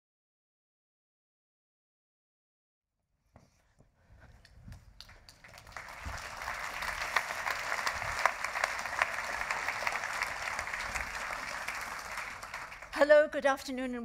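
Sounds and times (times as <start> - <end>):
audience applause: 5.0 - 13.0.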